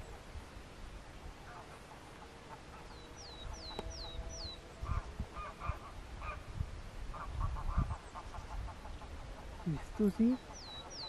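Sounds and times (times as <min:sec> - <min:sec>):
geese honking: 0:01.4 - 0:06.4.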